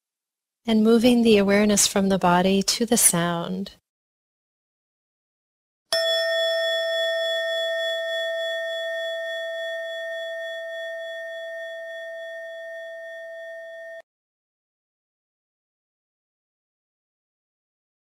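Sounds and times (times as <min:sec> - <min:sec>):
meditation chime ringing: 0:06.0 - 0:14.0.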